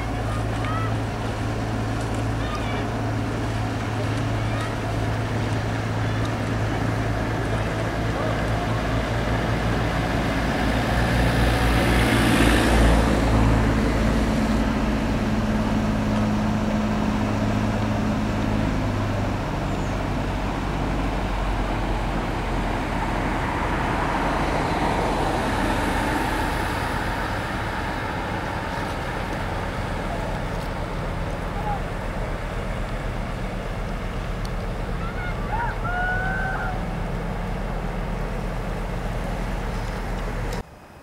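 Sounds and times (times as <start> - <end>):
motor engine humming: 0.0 - 41.0.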